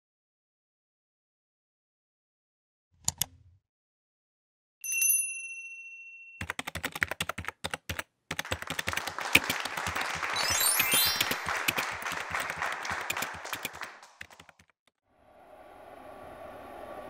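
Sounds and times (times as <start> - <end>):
bell ding: 4.8 - 6.5
rapid keyboard typing: 6.4 - 14.9.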